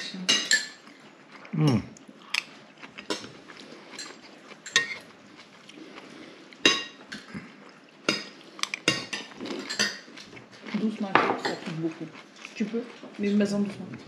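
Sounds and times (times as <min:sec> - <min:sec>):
cutlery clinking on plates: 0:00.0 - 0:00.8, 0:04.0 - 0:05.1, 0:06.6 - 0:07.3, 0:08.0 - 0:10.4.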